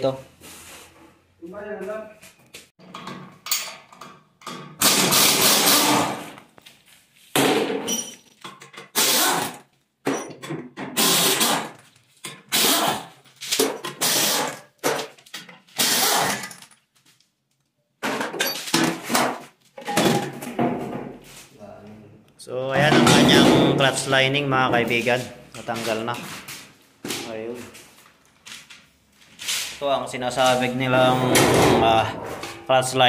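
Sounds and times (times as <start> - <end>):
impact wrench bursts: 4.8 - 6.2, 8.9 - 9.6, 10.9 - 11.8, 12.5 - 14.6, 15.8 - 16.5.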